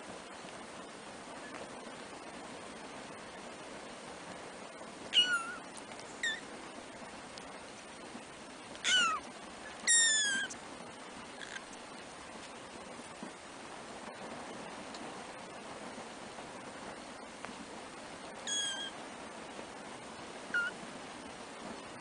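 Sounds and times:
kittens mewing: 8.8s - 9.2s, 18.5s - 19.0s.

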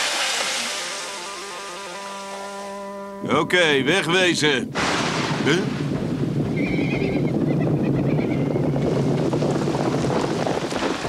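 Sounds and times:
rushing wind: 3.4s - 11.0s.

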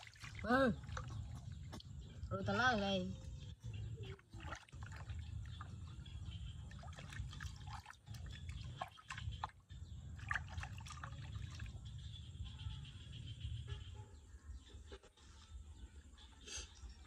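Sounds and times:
water splashing in plastic basin: 0.0s - 3.4s, 4.0s - 6.0s, 6.6s - 11.8s.

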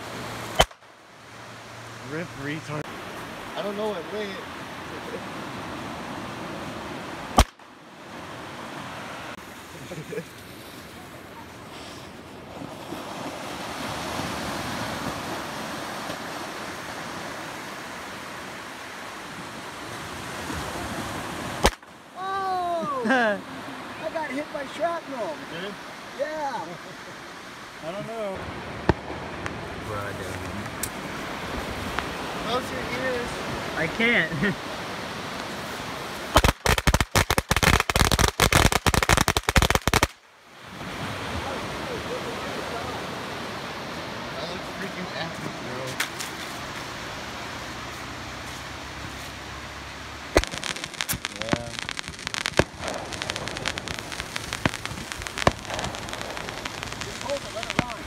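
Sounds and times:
firework bang: 50.3s - 58.0s
firework hissing: 50.3s - 58.0s.

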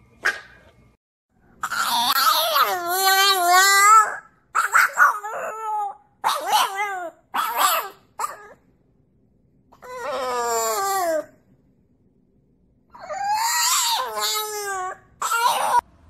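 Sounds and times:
puppy howling: 1.6s - 8.6s, 9.8s - 11.4s, 12.9s - 15.9s.

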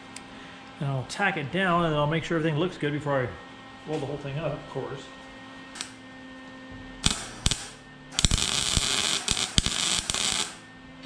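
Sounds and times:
welding arc crackling: 5.8s - 6.0s, 7.0s - 10.6s.

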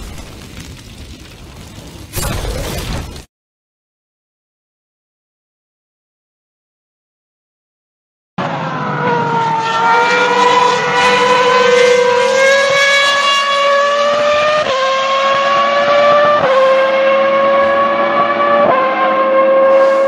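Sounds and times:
racing car engine accelerating: 8.4s - 20.0s.

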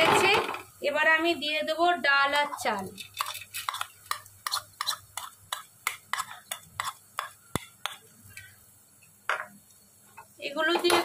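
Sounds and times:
spoon scraping against bowl: 2.4s - 8.5s.

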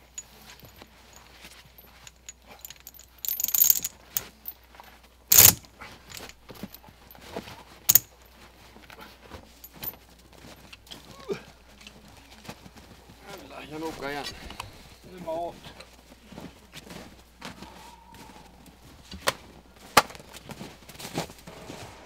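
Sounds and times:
steel chain links clinking: 0.0s - 4.6s, 5.3s - 6.8s, 7.9s - 8.2s, 9.6s - 10.0s.

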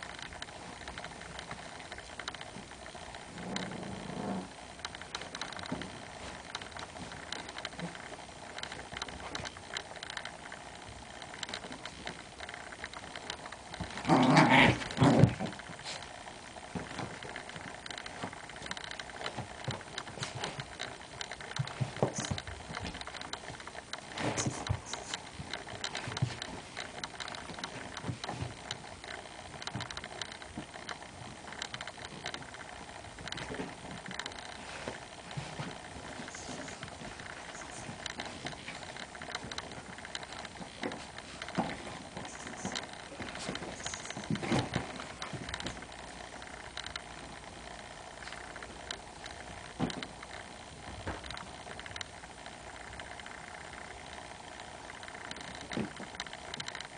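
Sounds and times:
dog growling or barking: 3.2s - 4.7s, 13.8s - 16.2s
dog paws scratching: 13.0s - 47.2s.

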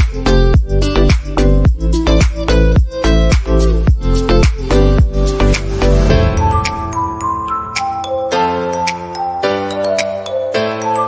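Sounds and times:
upbeat electronic music: 0.0s - 11.0s.

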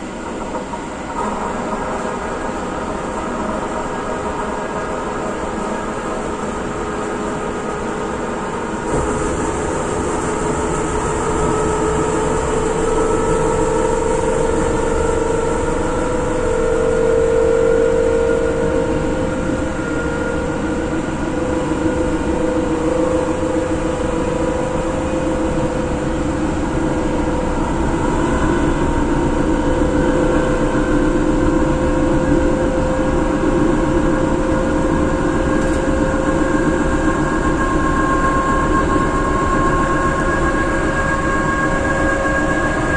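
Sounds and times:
wheels rumbling on rail: 0.0s - 42.9s
traction motor whine: 8.6s - 42.9s.

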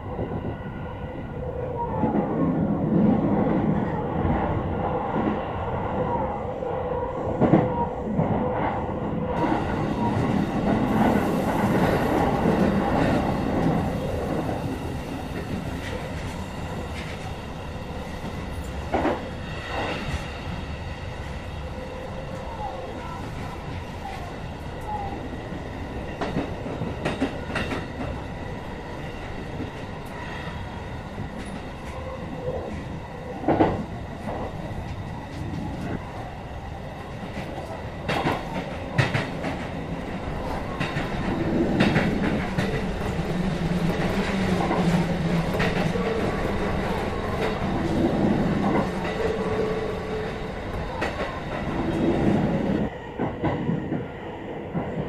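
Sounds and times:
train wheels rumbling on rails: 1.5s - 55.0s
clacks over rail joints: 26.2s - 28.2s, 37.4s - 39.8s, 40.4s - 49.4s.

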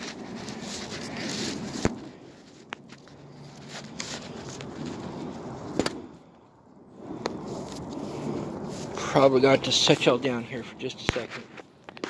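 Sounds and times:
tarp rustling: 0.0s - 5.4s.

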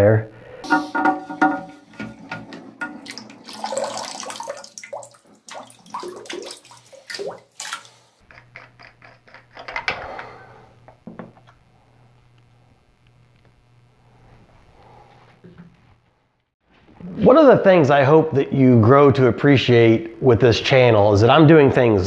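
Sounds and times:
water splashing and dripping: 2.8s - 8.2s
plastic parts clicking and knocking: 8.2s - 10.3s.

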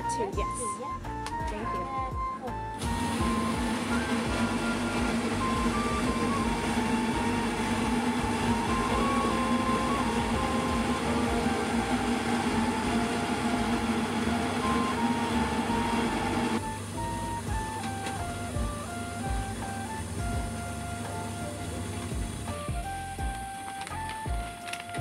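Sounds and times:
motor humming: 2.5s - 25.0s
rushing noise of rice milling: 2.8s - 22.7s.

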